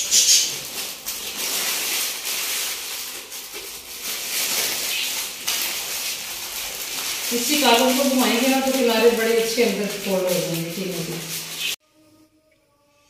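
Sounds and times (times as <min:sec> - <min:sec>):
paper wrapping crinkling: 0:00.0 - 0:11.8.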